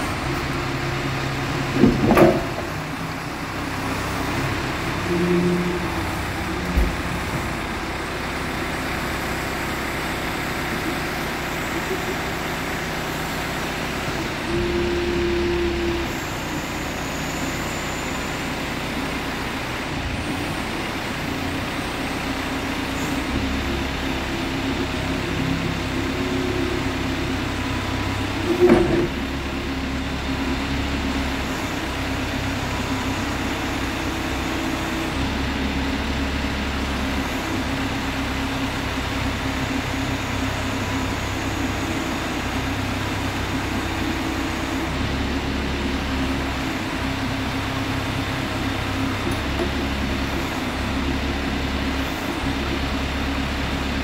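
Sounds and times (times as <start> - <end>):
hydraulic boom working: 0.0 - 18.0, 19.4 - 54.0
diesel engine running: 0.0 - 54.0
loud clunk: 1.8 - 2.8, 28.5 - 29.2.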